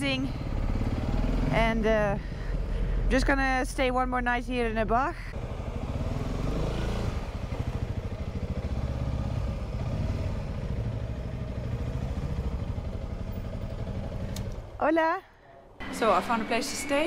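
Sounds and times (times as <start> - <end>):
motorcycle engine running at low revs: 0.2 - 3.1, 5.4 - 14.8.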